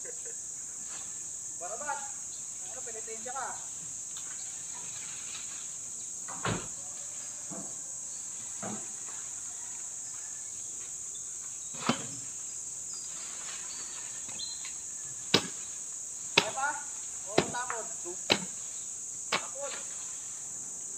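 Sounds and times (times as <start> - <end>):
insects droning: 0.0 - 20.9
wood knocks and thuds: 6.3 - 6.8, 17.3 - 18.6.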